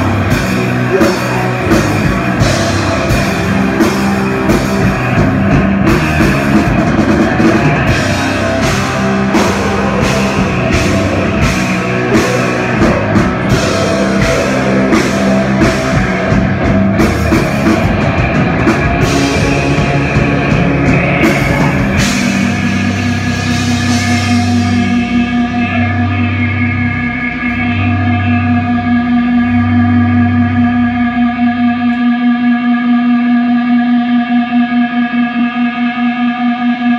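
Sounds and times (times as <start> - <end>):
drum kit with cymbals: 0.0 - 26.2
bass guitar: 0.0 - 36.9
distorted electric guitars: 0.0 - 36.9
guitar feedback drone: 0.0 - 36.9.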